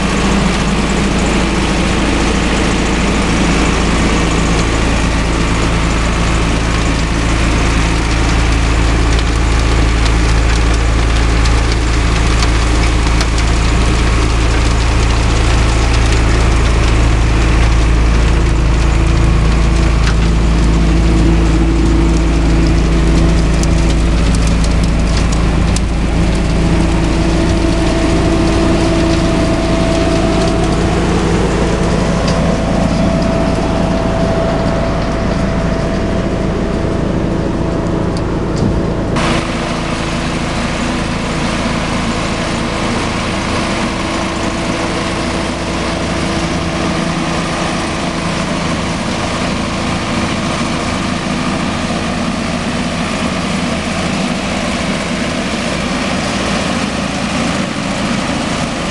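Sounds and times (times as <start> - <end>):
engine and suction fan drone: 0.0 - 58.9
high whine: 0.0 - 58.9
grit ticking: 2.6 - 36.1.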